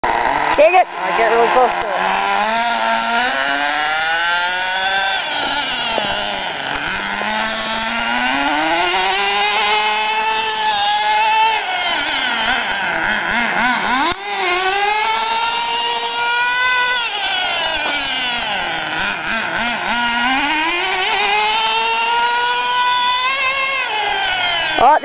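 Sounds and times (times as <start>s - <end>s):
small model truck engine revving: 0.0s - 25.0s.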